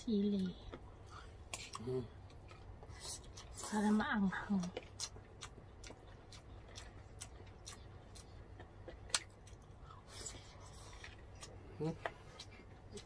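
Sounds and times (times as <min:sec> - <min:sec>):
people chewing and mouth clicks: 0:00.0 - 0:13.0.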